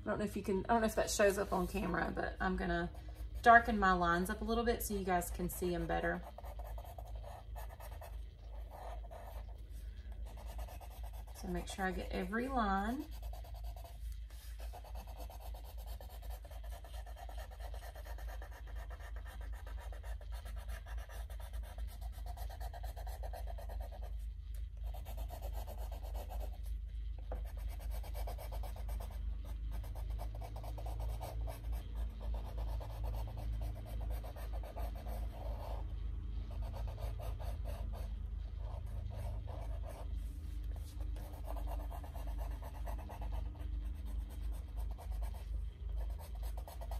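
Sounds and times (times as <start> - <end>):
steady low hum: 0.0 - 46.9
pencil scratching over card: 5.3 - 35.9, 36.5 - 46.9.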